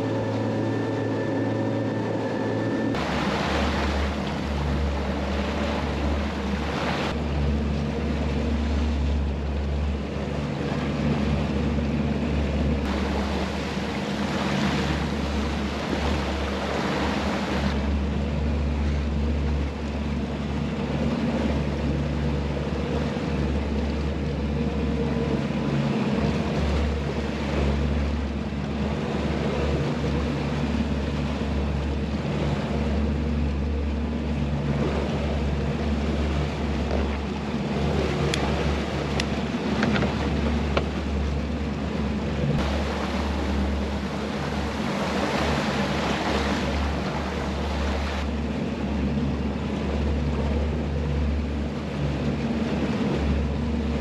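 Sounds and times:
outboard engines humming: 0.0s - 54.0s
wake water rushing: 0.0s - 54.0s
wind: 0.0s - 54.0s.

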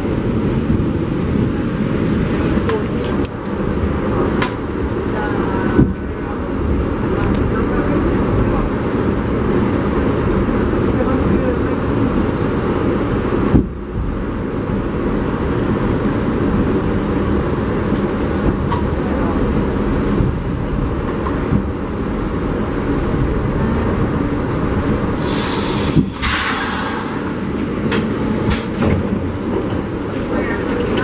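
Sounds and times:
subway train rumble and clatter: 0.0s - 31.0s
air hiss: 25.2s - 27.4s.

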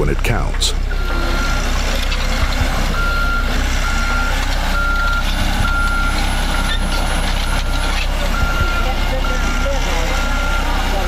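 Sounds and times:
backup alarm beeping: 0.0s - 11.0s
diesel engine running: 0.0s - 11.0s.

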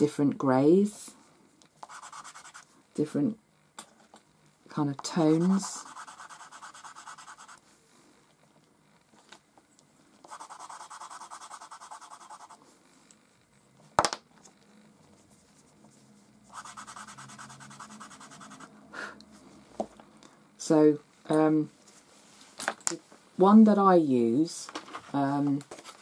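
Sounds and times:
charcoal scratching on paper: 1.8s - 2.7s, 5.1s - 7.6s, 10.3s - 12.6s, 16.5s - 18.7s.

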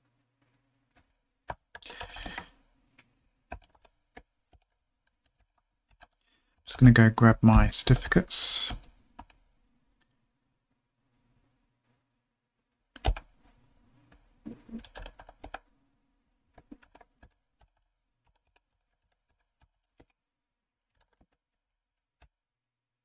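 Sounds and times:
computer keyboard keystrokes: 3.5s - 6.2s, 13.0s - 13.3s, 14.7s - 15.6s, 16.5s - 20.2s, 20.9s - 21.4s.

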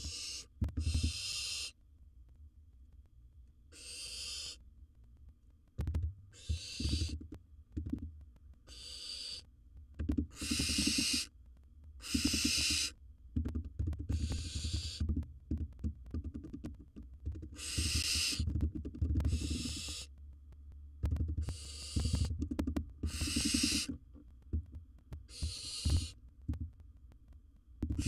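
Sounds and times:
owl hissing: 0.0s - 1.8s, 3.7s - 4.6s, 6.3s - 7.2s, 8.7s - 9.5s, 10.3s - 11.3s, 12.0s - 13.0s, 14.1s - 15.2s, 17.4s - 18.6s, 19.2s - 20.1s, 21.4s - 22.4s, 23.0s - 24.0s, 25.2s - 26.2s.

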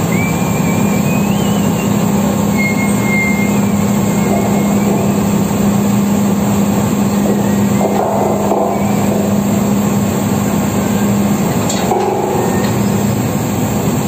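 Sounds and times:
high wavering squeal: 0.0s - 6.2s, 7.2s - 9.5s
drilling rig machinery din: 0.0s - 14.0s.

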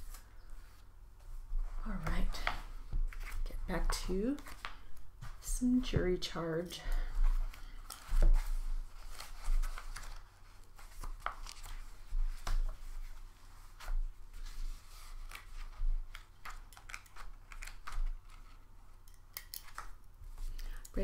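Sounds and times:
paper rustling: 7.4s - 19.0s.

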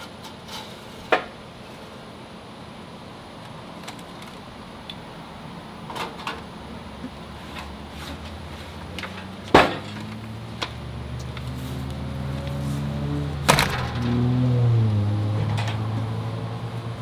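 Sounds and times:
low droning hum: 9.8s - 17.0s.

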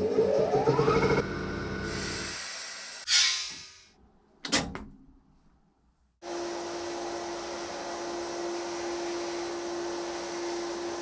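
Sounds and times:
abrasive blasting hiss: 1.9s - 3.4s.

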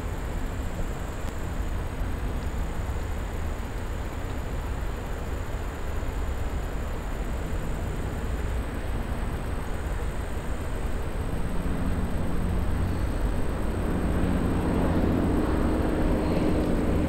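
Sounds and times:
low engine drone: 0.0s - 17.0s
steady low rumbling: 9.5s - 17.0s.

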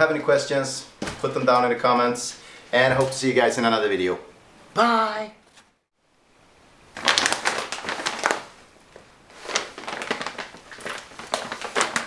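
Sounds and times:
plastic packaging crinkling: 6.9s - 12.0s.

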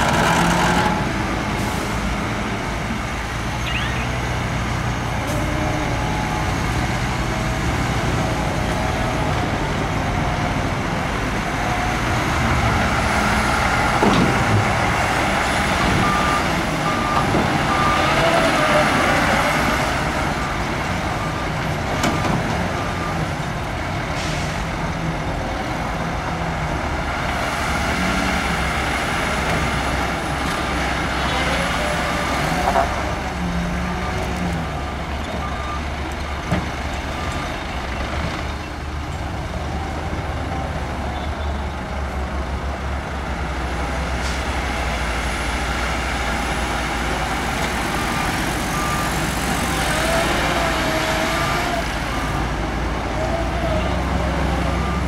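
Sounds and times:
heavy diesel machinery running: 0.0s - 55.0s
reversing alarm beeps: 3.6s - 4.2s, 47.9s - 52.5s, 54.6s - 55.0s.

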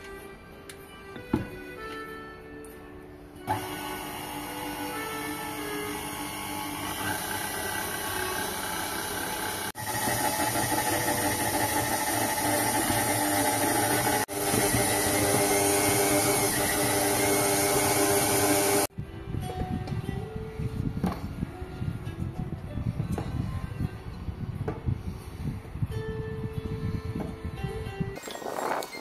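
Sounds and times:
stand mixer motor whine: 3.5s - 18.9s.

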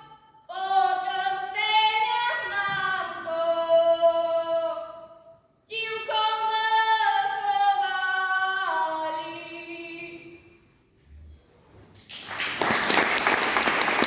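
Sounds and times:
girl singing folk song: 0.0s - 10.6s.

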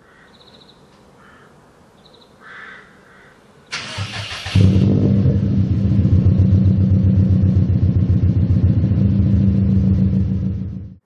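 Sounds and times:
starter motor whirr: 3.7s - 6.4s
car engine idling: 3.7s - 11.0s.

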